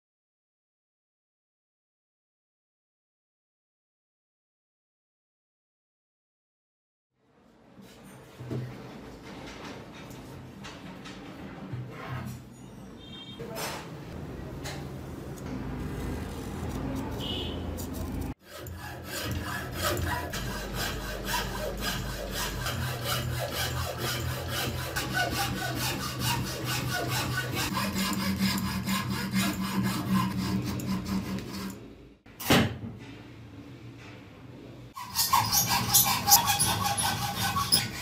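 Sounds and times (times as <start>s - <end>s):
hacksaw cutting wood: 18.4s - 31.8s, 35.0s - 38.0s.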